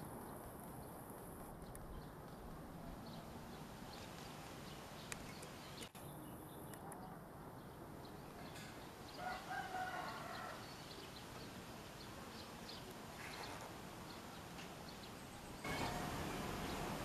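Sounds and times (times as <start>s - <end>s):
small birds chirping: 0.0s - 17.0s
distant rooster crowing: 9.1s - 11.0s
steady rushing noise: 11.0s - 17.0s.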